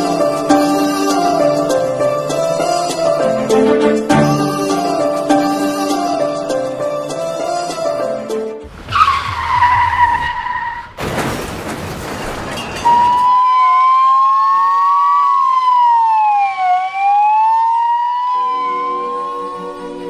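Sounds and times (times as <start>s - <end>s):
emergency vehicle sirens wailing: 8.7s - 10.9s, 12.8s - 20.0s
tyre screech: 8.7s - 11.0s
car crash: 8.7s - 13.4s.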